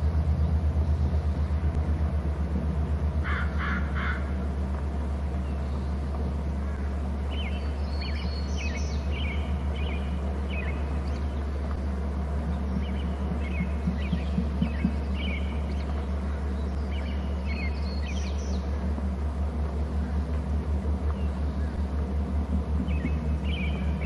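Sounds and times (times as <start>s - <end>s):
low hum: 0.0s - 24.0s
crow cawing: 3.2s - 4.4s
high chirping bird calls: 6.7s - 11.5s, 12.5s - 18.7s, 22.8s - 24.0s.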